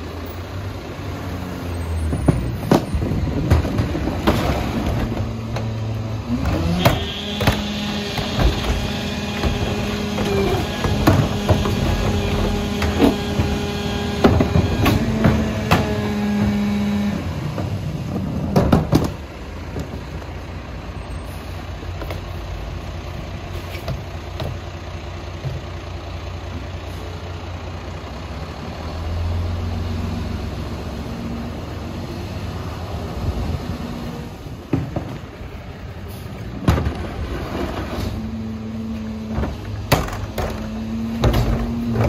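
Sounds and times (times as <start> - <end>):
cart banging clunks: 2.0 - 20.0, 34.6 - 35.6, 36.5 - 42.0
diesel engine idling: 4.8 - 37.2
hydraulic whine: 6.3 - 17.2.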